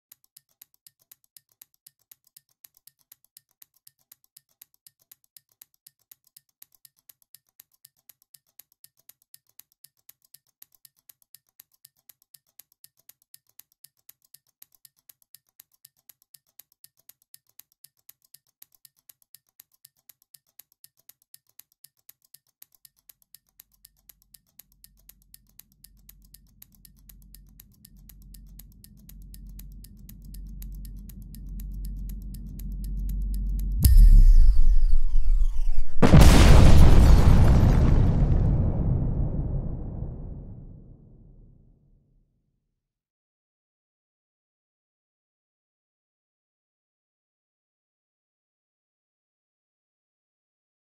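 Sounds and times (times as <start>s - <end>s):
clock mechanism ticking: 0.0s - 36.4s
low rumble: 28.4s - 41.3s.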